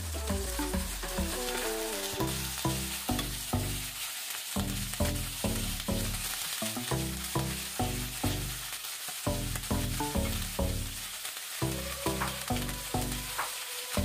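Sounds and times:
background music with low beat: 0:00.0 - 0:03.9, 0:09.3 - 0:11.0
chicken sizzling in hot oil: 0:00.0 - 0:14.0.

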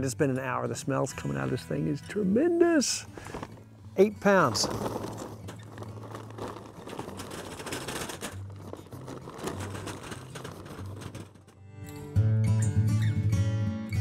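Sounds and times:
charcoal clattering into metal tray: 0:04.3 - 0:11.6.

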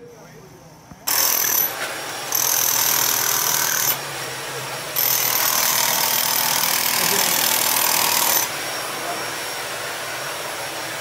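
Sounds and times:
high motor whine: 0:00.0 - 0:11.0
demolition hammer chiselling concrete: 0:01.1 - 0:04.0, 0:04.9 - 0:08.6.

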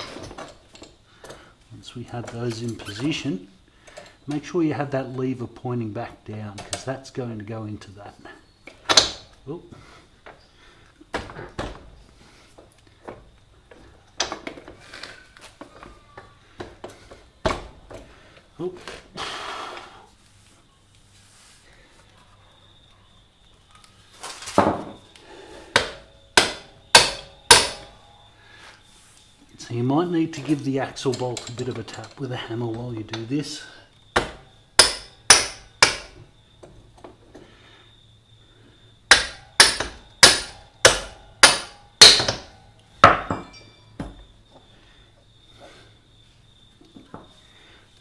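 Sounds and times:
hammer striking metal bolt: 0:25.8 - 0:27.9, 0:34.2 - 0:36.1, 0:39.1 - 0:43.6.

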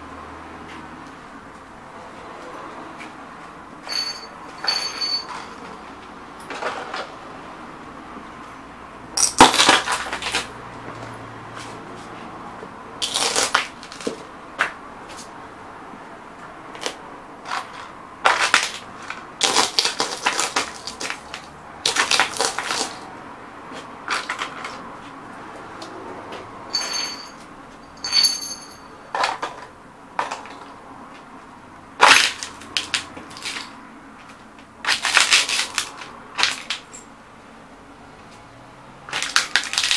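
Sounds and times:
glass tubes crunching underfoot: 0:09.2 - 0:10.6, 0:13.0 - 0:14.3, 0:16.8 - 0:23.1, 0:32.0 - 0:37.1, 0:39.1 - 0:39.9.

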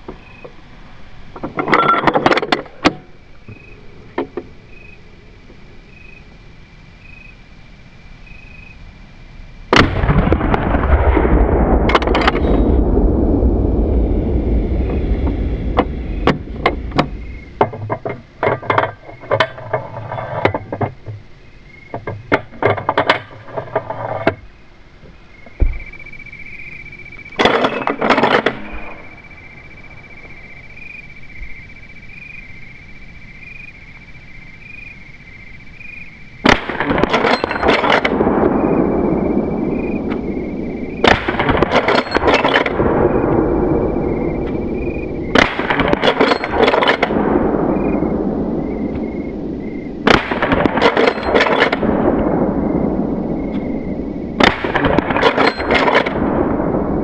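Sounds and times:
insects chirring: 0:00.0 - 0:57.0
rifle shot with rolling echo: 0:09.7 - 0:17.7, 0:36.4 - 0:57.0.

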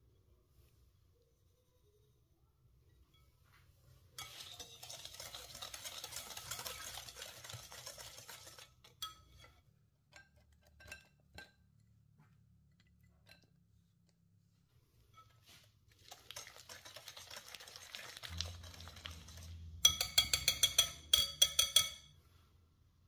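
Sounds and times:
utensil beating in mixing bowl: 0:04.2 - 0:13.5, 0:15.2 - 0:22.1
taps and clinks on bowl: 0:19.8 - 0:22.1.

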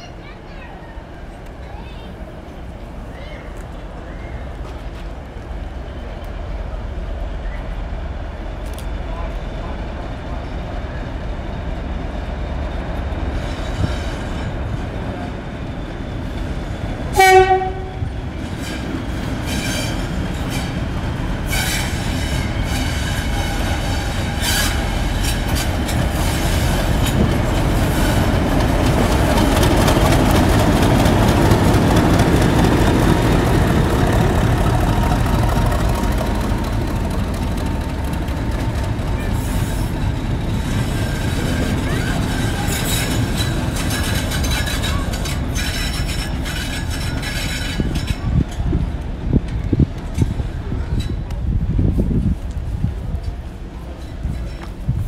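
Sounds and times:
diesel locomotive engine running: 0:00.6 - 0:55.0
locomotive horn blast: 0:17.1 - 0:18.1
wheels clicking on rails: 0:18.3 - 0:51.6.

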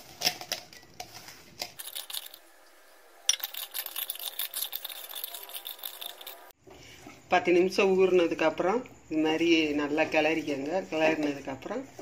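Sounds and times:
hand mixing in metal bowl: 0:01.8 - 0:02.4, 0:03.3 - 0:06.5.

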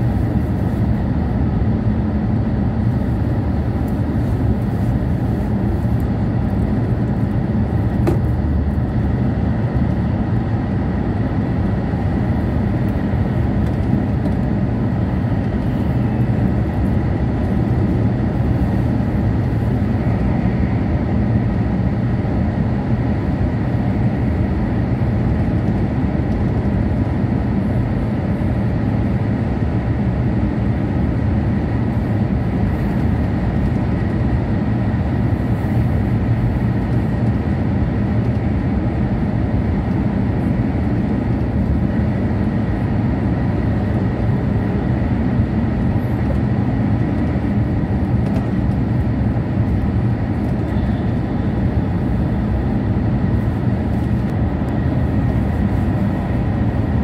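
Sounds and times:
train running rumble: 0:00.0 - 0:57.0
faint high whine: 0:50.5 - 0:52.2.

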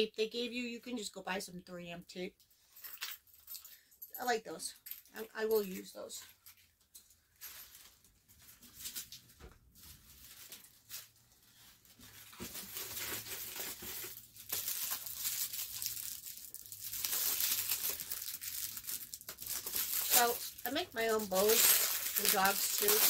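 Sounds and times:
packaging rustling and tearing: 0:07.4 - 0:23.0.

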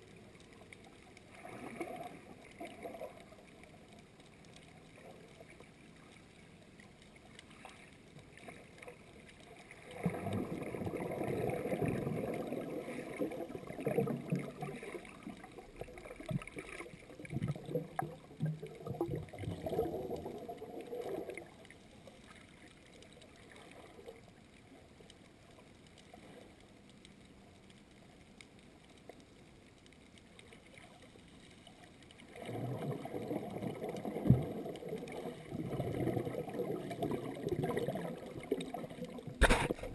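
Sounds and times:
faint muffled underwater hiss: 0:00.0 - 0:39.9
air bubbles gurgling underwater: 0:01.2 - 0:03.6, 0:09.6 - 0:21.7, 0:32.2 - 0:39.9.

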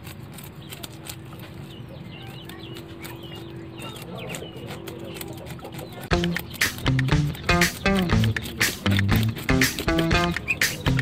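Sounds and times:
birds chirping: 0:00.0 - 0:11.0
loud music: 0:06.1 - 0:11.0
fish scales being scraped: 0:07.6 - 0:11.0.

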